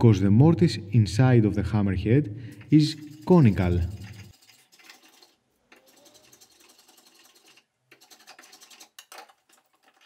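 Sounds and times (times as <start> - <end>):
hand tool rasping wood: 2.6 - 9.7.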